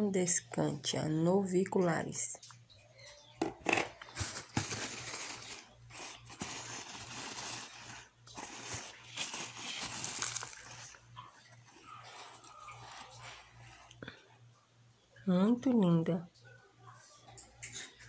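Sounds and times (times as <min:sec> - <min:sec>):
paper wrapping crinkling: 0:04.0 - 0:14.0.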